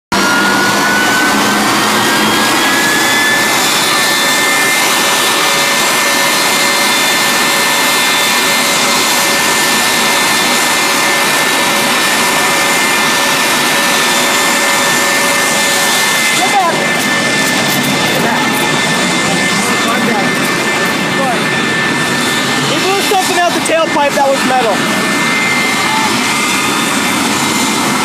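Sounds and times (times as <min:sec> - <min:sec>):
jet engines roaring: 0:00.1 - 0:28.0.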